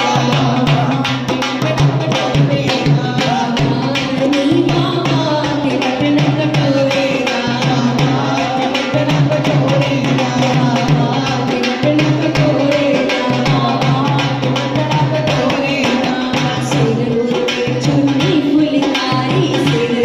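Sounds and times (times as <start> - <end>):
hand drum beating: 0.0 - 20.0
women singing folk songs: 0.0 - 20.0.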